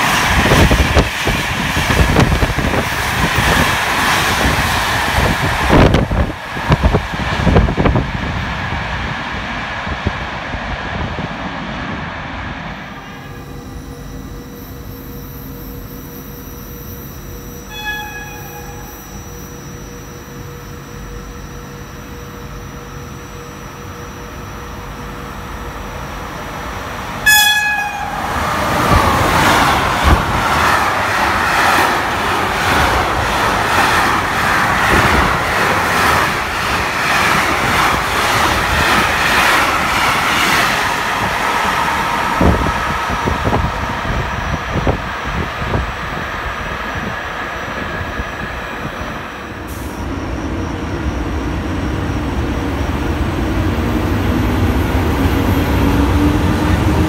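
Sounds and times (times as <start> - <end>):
train horn blast: 17.2 - 19.3, 27.2 - 30.2.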